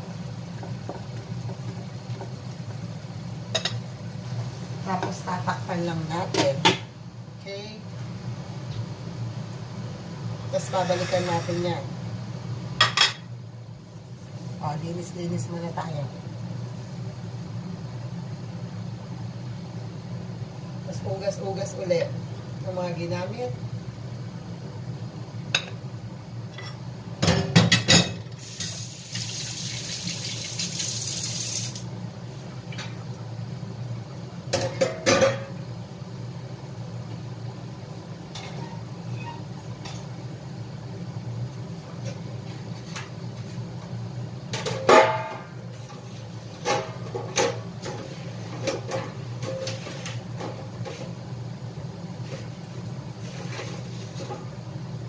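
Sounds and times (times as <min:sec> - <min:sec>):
dishes clattering in a sink: 0:26.6 - 0:28.3, 0:34.5 - 0:35.6, 0:44.5 - 0:45.6, 0:46.6 - 0:48.0, 0:48.6 - 0:51.0.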